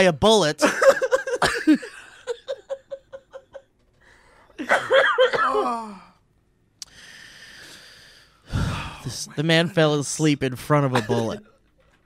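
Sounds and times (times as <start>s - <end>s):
man laughing: 0.6s - 3.7s, 10.7s - 11.6s.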